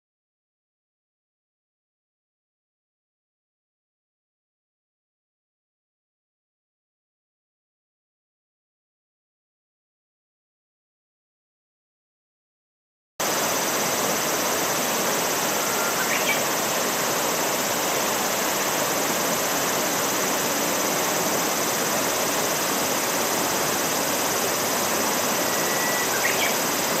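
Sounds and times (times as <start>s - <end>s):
river water rushing: 13.2s - 27.0s
faint bird chirp: 15.4s - 16.7s, 25.2s - 27.0s.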